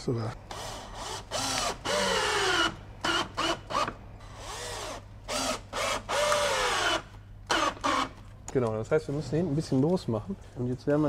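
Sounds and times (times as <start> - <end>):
cordless drill drilling plastic: 0.5 - 8.2.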